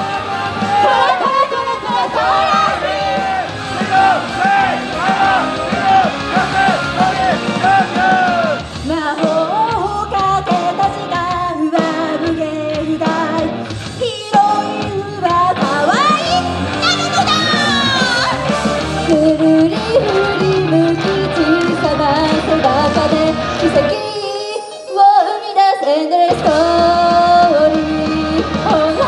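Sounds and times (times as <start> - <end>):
shouting voices: 0.0 - 8.7
people singing pop rock song: 0.0 - 13.6, 14.5 - 24.0, 26.3 - 29.0
loud rock band: 0.0 - 24.0, 26.2 - 29.0.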